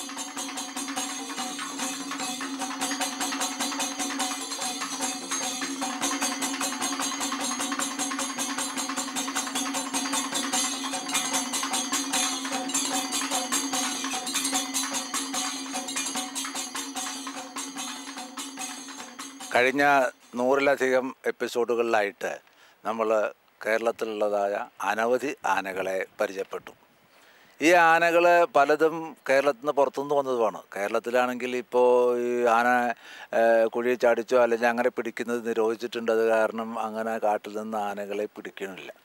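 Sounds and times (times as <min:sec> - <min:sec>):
fast percussion rhythm: 0:00.0 - 0:22.2, 0:27.6 - 0:30.0, 0:32.4 - 0:39.0.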